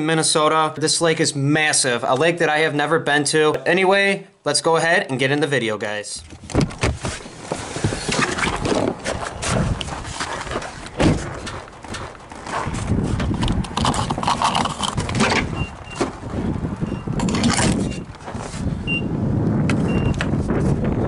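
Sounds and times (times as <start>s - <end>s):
rustling: 6.2s - 16.2s.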